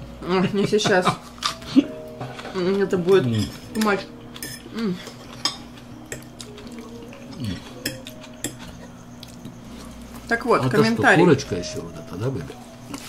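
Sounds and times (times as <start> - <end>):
forks clinking on metal tray: 2.2 - 6.6, 7.3 - 8.8.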